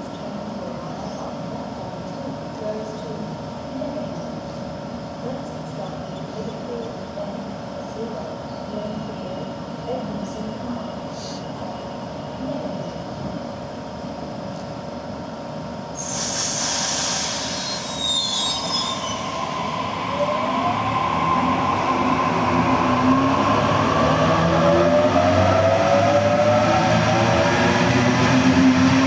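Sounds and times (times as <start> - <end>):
air hiss with squeaking: 16.0 - 19.1
electric train humming: 16.7 - 29.0.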